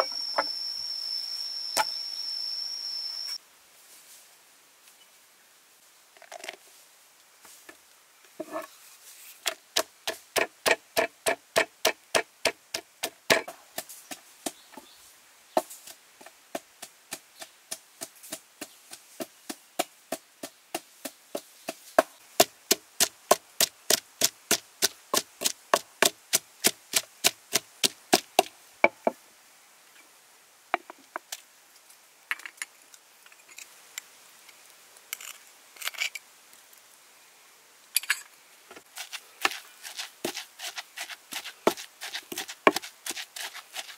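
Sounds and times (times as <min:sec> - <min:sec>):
pestle pounding in wooden mortar: 0:09.5 - 0:14.6, 0:16.6 - 0:29.1, 0:39.0 - 0:43.9.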